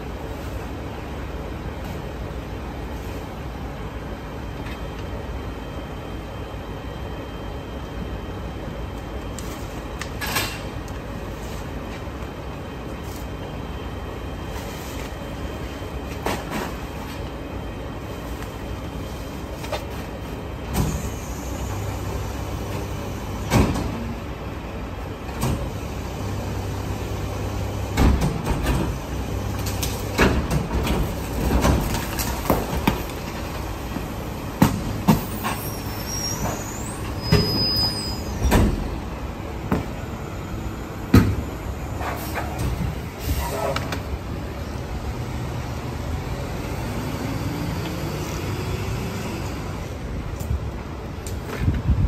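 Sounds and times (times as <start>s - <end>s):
garbage truck engine hum: 0.0s - 52.0s
high squeal: 35.2s - 38.6s.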